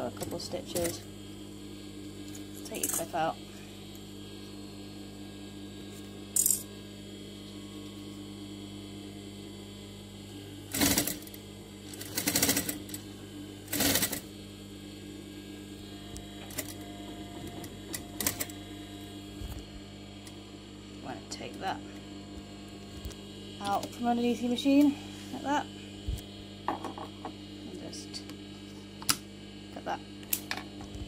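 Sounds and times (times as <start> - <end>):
motor humming: 0.0 - 31.0
sewing machine stitching: 12.0 - 12.9.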